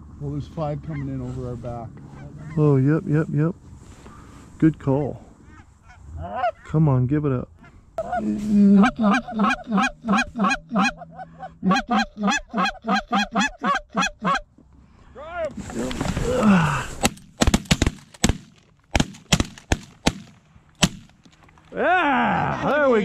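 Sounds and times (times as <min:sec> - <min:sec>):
rustling: 0:03.7 - 0:04.6, 0:15.5 - 0:21.8
goose honking and clucking: 0:07.6 - 0:14.5
shotgun blasts: 0:17.0 - 0:21.2.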